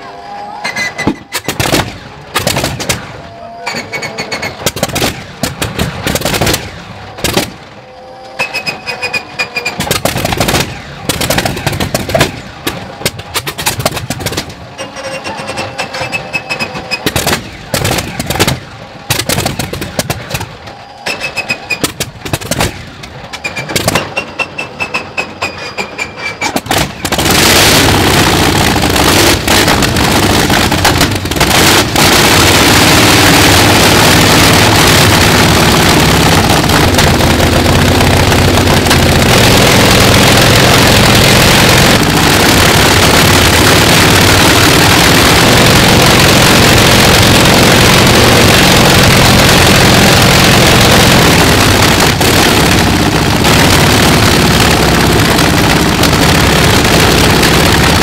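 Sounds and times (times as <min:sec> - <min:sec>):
radial aircraft engine starting: 0:27.3 - 0:58.0.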